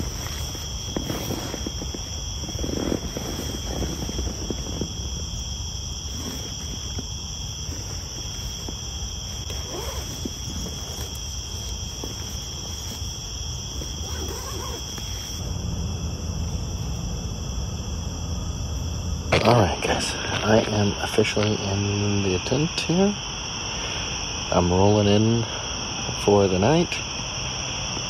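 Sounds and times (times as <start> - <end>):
low rumble: 0.0 - 13.8, 15.4 - 21.1
nylon fabric rustling: 0.0 - 15.4
night insects trilling: 0.0 - 28.0.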